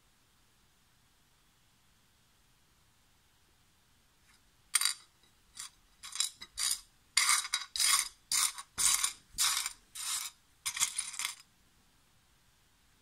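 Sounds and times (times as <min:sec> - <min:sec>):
stones clattering on ceramic plate: 0:04.8 - 0:11.4.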